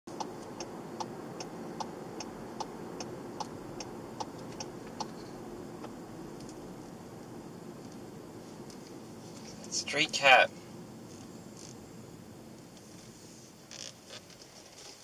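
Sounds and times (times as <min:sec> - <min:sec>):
turn signal ticking: 0:00.1 - 0:08.9
low drone of car on road: 0:00.1 - 0:15.0.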